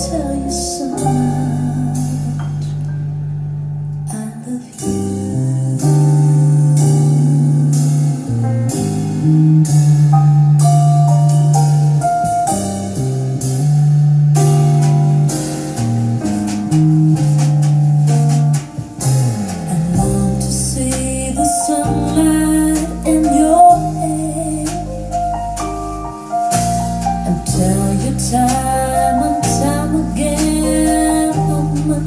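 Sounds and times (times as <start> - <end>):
instrumental music over loudspeakers: 0.0 - 32.0
drum hits: 14.4 - 31.9.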